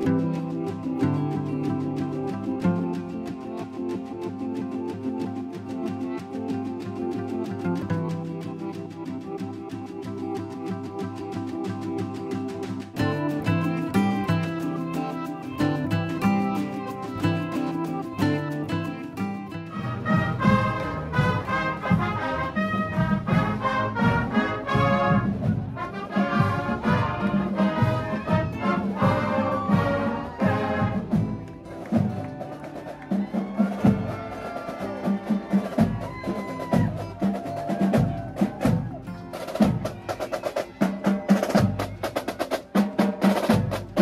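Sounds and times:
brass section playing a tune: 13.1s - 31.5s.

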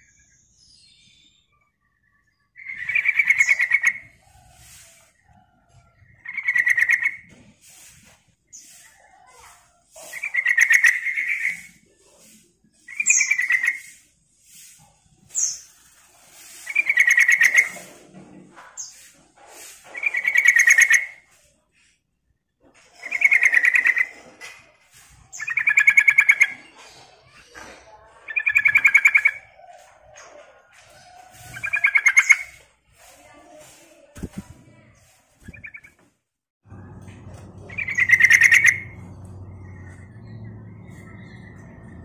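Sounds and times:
bird singing trilled phrases: 35.4s - 36.0s, 37.7s - 41.9s.

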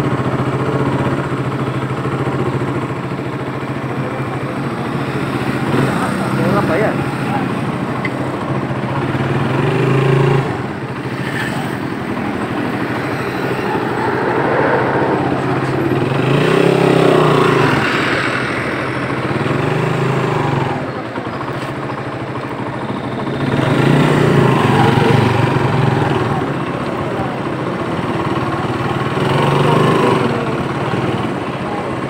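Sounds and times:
road and wind noise: 0.0s - 32.0s
small motorcycle engine revving: 0.0s - 32.0s.

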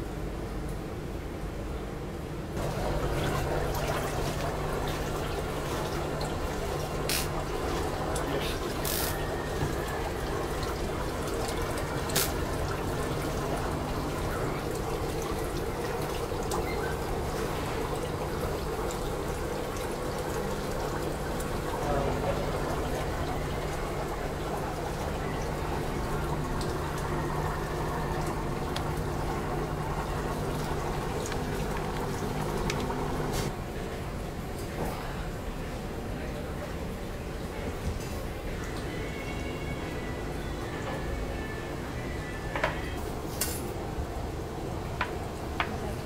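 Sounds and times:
water trickling in a tank: 2.6s - 33.5s, 35.9s - 46.0s.

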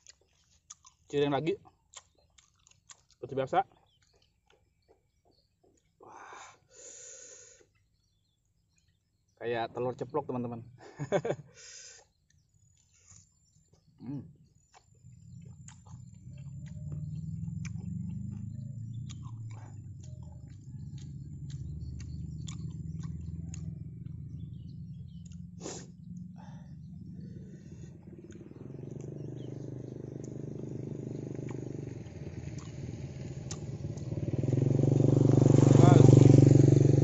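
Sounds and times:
crunchy chewing: 0.0s - 6.0s, 12.0s - 24.3s, 25.1s - 26.2s, 27.1s - 34.1s.

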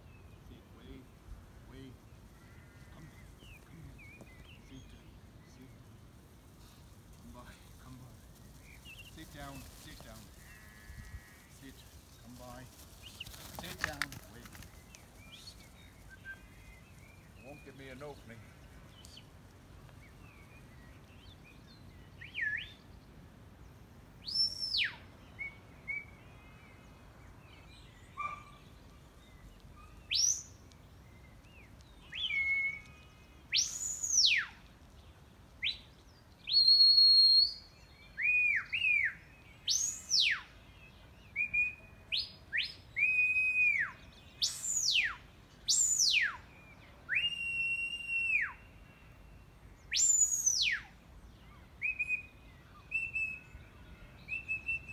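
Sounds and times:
sharp shepherd's whistle notes: 32.2s - 32.9s, 33.5s - 34.6s, 36.5s - 40.5s, 41.4s - 46.4s, 47.1s - 48.6s, 49.9s - 50.9s, 51.8s - 52.3s.

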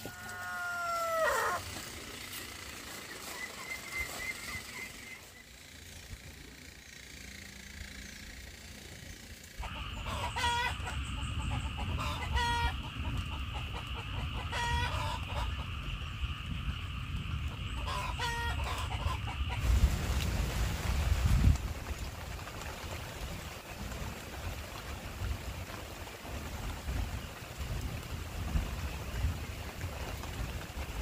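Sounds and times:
chicken calling: 0.0s - 1.7s, 9.6s - 15.6s, 17.8s - 19.6s
rain falling: 19.6s - 31.0s.

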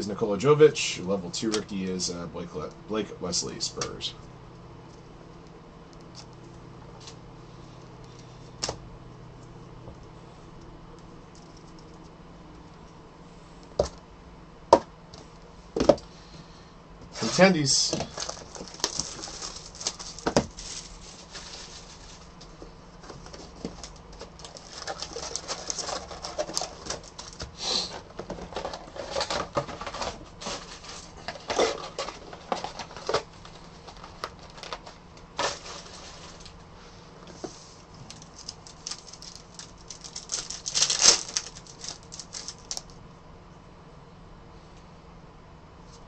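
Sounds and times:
plastic wrappers crinkling and tearing: 17.2s - 22.4s, 23.2s - 27.5s, 28.5s - 36.6s, 38.0s - 43.0s.

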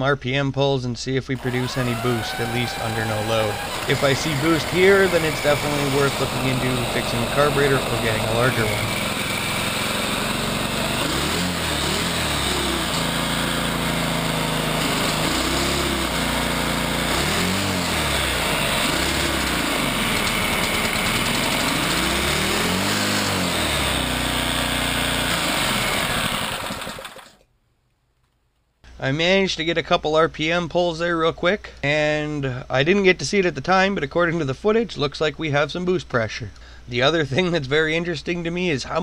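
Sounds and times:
small engine revving: 1.4s - 27.4s.

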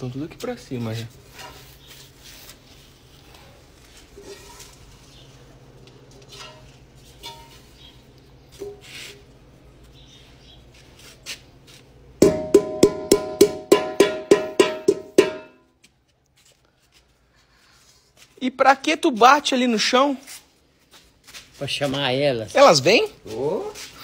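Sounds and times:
metal pot banged on concrete: 12.2s - 15.7s.

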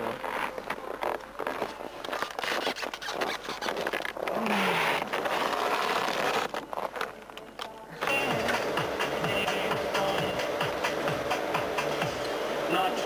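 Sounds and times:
scraping and rustling of gear: 0.0s - 7.7s.

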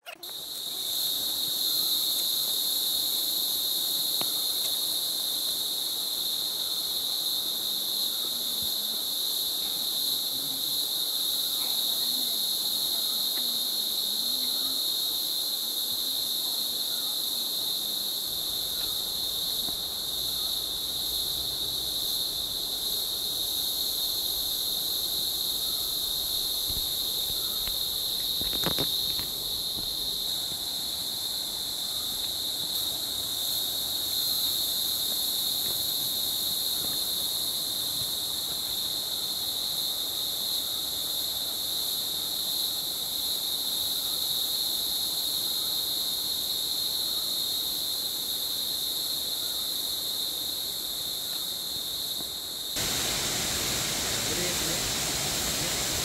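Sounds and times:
insects shrilling: 0.0s - 37.6s, 51.7s - 56.0s.

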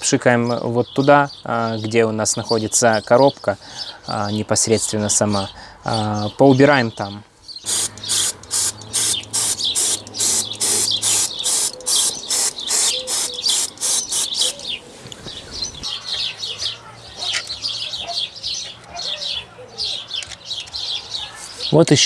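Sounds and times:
birds chirping: 0.0s - 22.0s
aerosol spray hisses: 7.7s - 14.6s.

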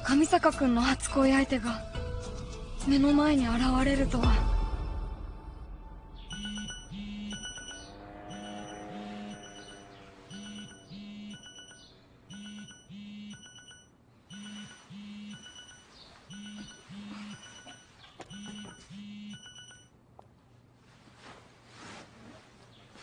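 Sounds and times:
beeping electronic ringtone: 6.2s - 19.9s
phone vibrating buzz: 6.3s - 19.9s.

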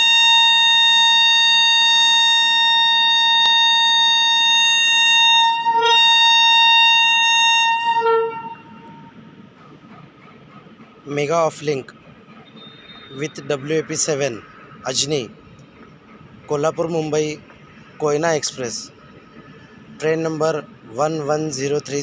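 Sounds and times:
locomotive horn blast: 0.0s - 9.2s, 12.4s - 13.8s.

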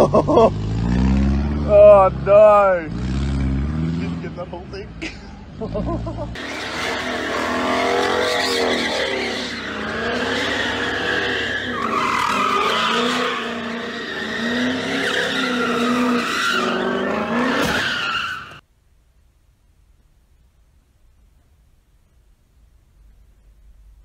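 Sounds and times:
car engine revving: 0.3s - 4.5s, 5.4s - 17.8s
tyres squealing: 6.4s - 18.6s.

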